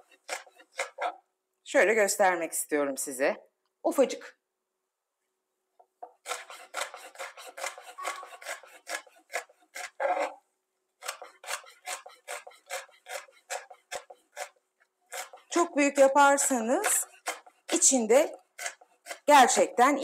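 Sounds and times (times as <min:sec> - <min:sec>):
knife chopping on cutting board: 0:00.0 - 0:01.2, 0:06.1 - 0:10.3, 0:11.0 - 0:15.7, 0:16.4 - 0:19.6.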